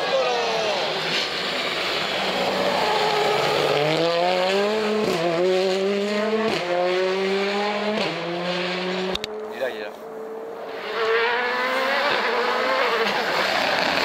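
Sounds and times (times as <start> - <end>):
rally car engine accelerating: 0.0 - 14.0.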